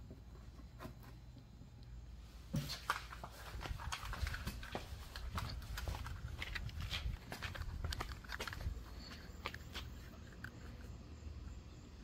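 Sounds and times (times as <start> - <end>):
footsteps: 2.4 - 10.8
handling noise: 2.5 - 11.0.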